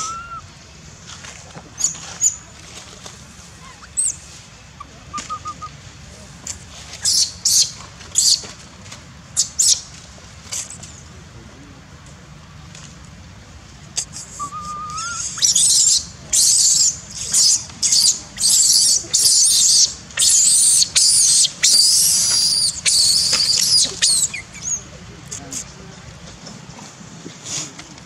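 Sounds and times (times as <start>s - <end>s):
baby monkey screaming: 14.2s - 24.8s.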